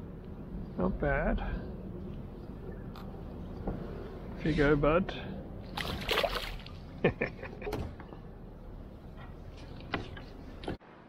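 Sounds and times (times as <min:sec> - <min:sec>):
fish splashing into water: 0:05.7 - 0:06.8.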